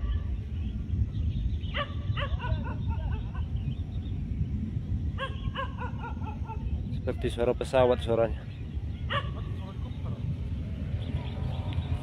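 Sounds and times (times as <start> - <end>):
volcano erupting with deep rumble: 0.0 - 12.0
short high yelping calls: 5.2 - 6.7, 9.1 - 9.9.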